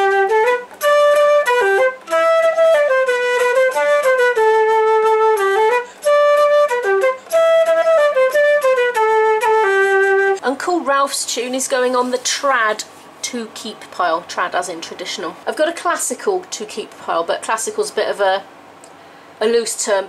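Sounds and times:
flute playing folk melody: 0.0 - 10.4
short breaths: 5.8 - 6.1, 18.9 - 19.4.

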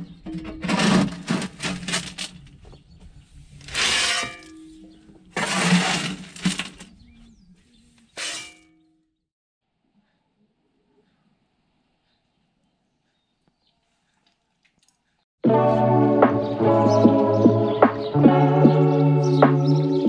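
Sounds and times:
shovel scraping gravel: 0.4 - 2.4, 3.6 - 4.7, 5.3 - 6.9, 8.1 - 8.7.

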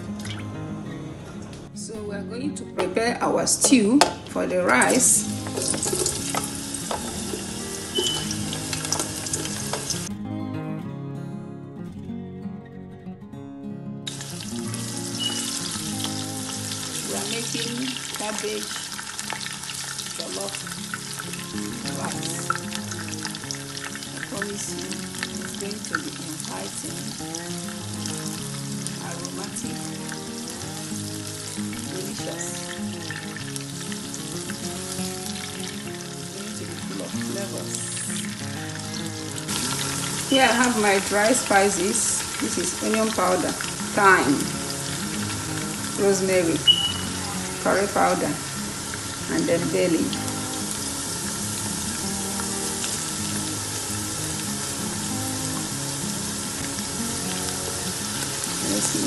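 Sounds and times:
background music: 0.0 - 59.0
onions sizzling in oil: 3.5 - 10.1, 14.1 - 59.0.

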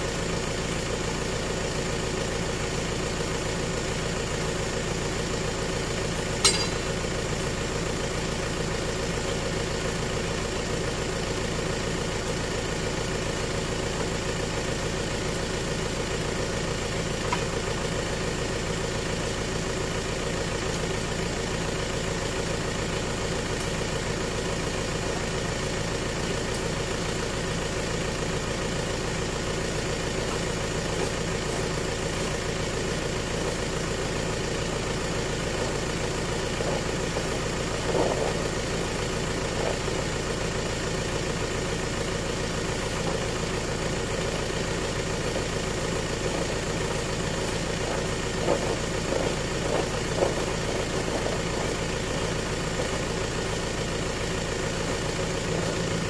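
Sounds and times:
truck engine idling: 0.0 - 56.0
sharp knock: 6.5 - 7.0.

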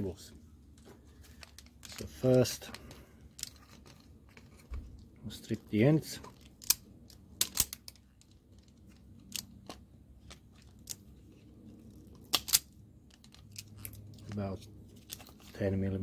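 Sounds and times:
wire strippers clicking and snipping: 6.2 - 11.2, 11.9 - 15.6.

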